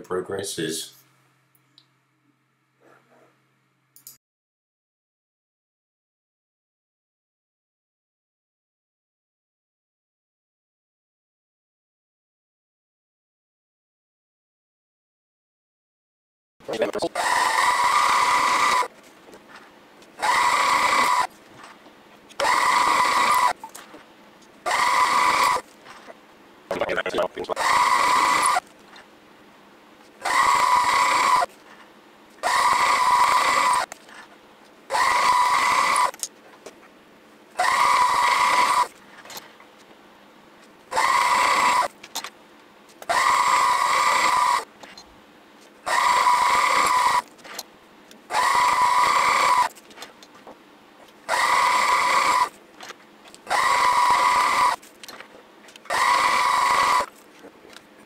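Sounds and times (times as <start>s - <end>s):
drill cutting through steel: 17.2s - 18.9s, 20.2s - 21.3s, 22.4s - 23.6s, 24.7s - 25.6s, 27.6s - 28.6s, 30.2s - 31.5s, 32.4s - 33.9s, 34.9s - 36.2s, 37.6s - 38.9s, 40.9s - 41.9s, 43.1s - 44.7s, 45.9s - 47.3s, 48.3s - 49.7s, 51.3s - 52.5s, 53.5s - 54.8s, 55.9s - 57.1s.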